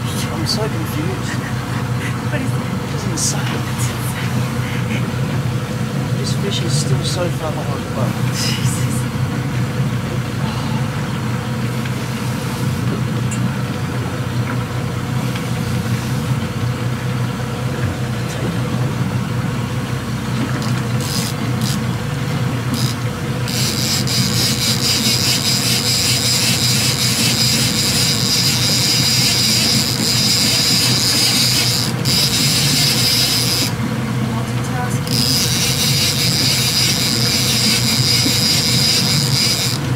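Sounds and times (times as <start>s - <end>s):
boat engine running: 0.0s - 39.9s
fishing reel whirring: 20.6s - 22.0s, 22.6s - 33.8s, 35.0s - 39.9s.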